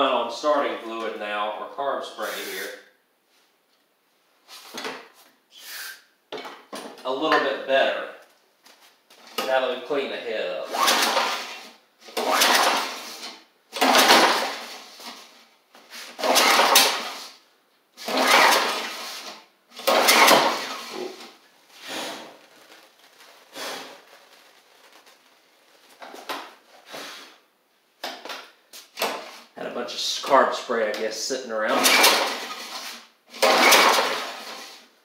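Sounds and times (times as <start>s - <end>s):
engine cranking over: 10.6s - 15.2s, 16.1s - 17.3s, 18.0s - 25.2s, 31.7s - 34.8s
recoil starter rope pulls: 10.6s - 17.4s, 18.0s - 26.6s, 31.6s - 34.8s.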